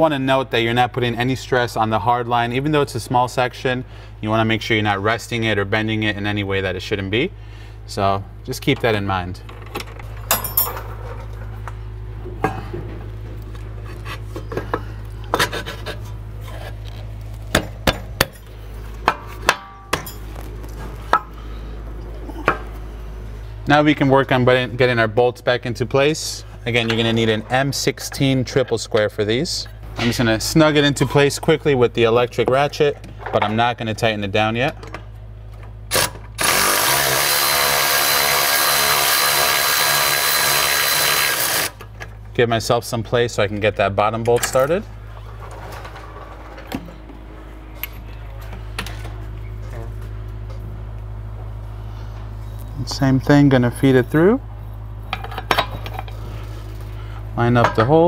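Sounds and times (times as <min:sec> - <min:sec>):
steady low hum: 0:00.0 - 0:58.0
electric ratchet whining: 0:35.9 - 0:41.8.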